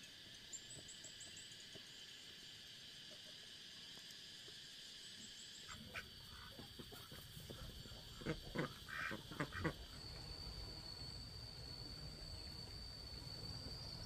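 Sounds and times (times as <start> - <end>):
high insect buzz: 0.0 - 14.0
chickens clucking: 5.7 - 9.9.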